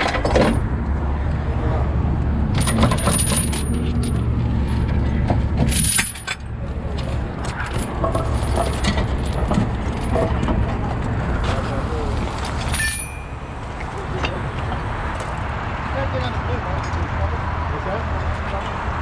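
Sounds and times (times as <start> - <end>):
diesel engine humming: 0.0 - 19.0
metallic clinking and jingling: 2.6 - 5.0, 5.6 - 6.5, 12.5 - 13.4.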